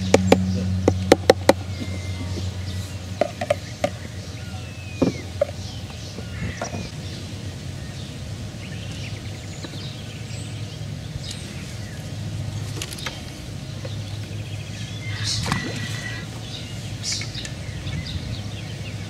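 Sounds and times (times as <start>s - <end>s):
birds chirping: 0.0s - 19.0s
steady low rumble: 0.0s - 19.0s.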